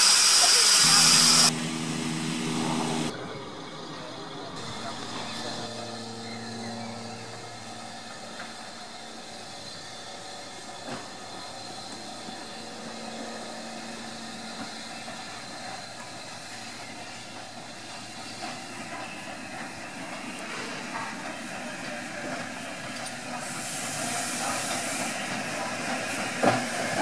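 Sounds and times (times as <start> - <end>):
hiss of steam: 0.0 - 1.5, 13.8 - 27.0
sharp clanks from train: 4.7 - 27.0.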